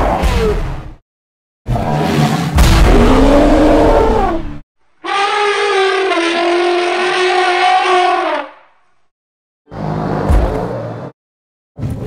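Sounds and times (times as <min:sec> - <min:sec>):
deep creature bellow: 0:01.8 - 0:08.6
trumpet-like animal call: 0:05.0 - 0:08.6.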